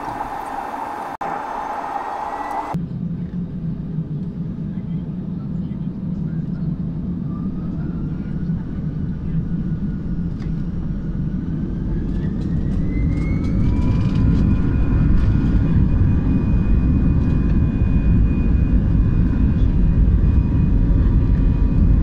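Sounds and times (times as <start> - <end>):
jet engine whine rising: 0.0 - 4.0, 9.0 - 22.0
low jet engine rumble: 0.0 - 22.0.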